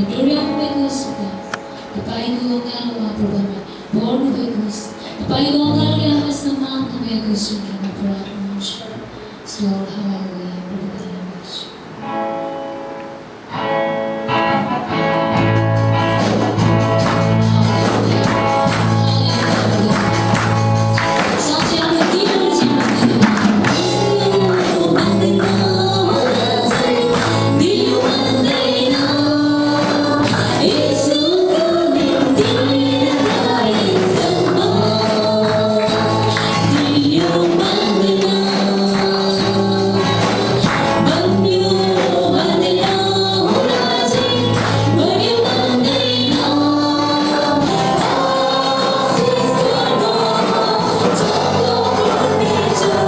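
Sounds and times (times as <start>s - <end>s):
band of guitars and drums: 0.0s - 9.4s, 11.7s - 53.0s
singers singing together: 17.8s - 53.0s.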